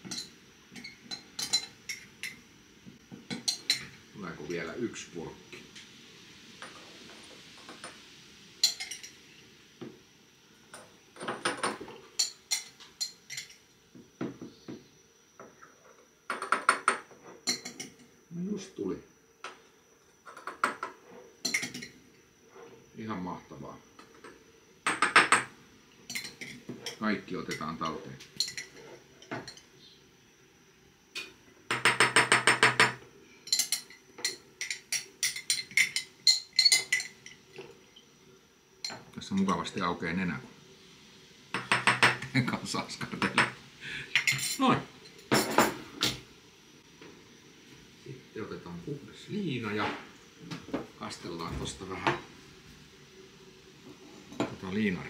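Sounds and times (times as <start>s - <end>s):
cutlery clinking against bowl and jars: 0.0s - 2.4s, 3.2s - 4.0s, 8.6s - 9.2s, 11.2s - 13.6s, 16.3s - 18.1s, 20.3s - 22.0s, 26.1s - 29.7s, 31.2s - 37.4s, 43.2s - 46.2s.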